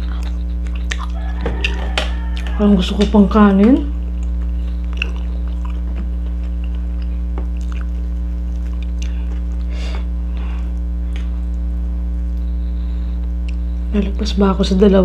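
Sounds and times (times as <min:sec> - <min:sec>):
wet chewing and lip smacks: 0:00.0 - 0:03.1, 0:04.1 - 0:09.7
loud electrical hum: 0:00.0 - 0:15.0.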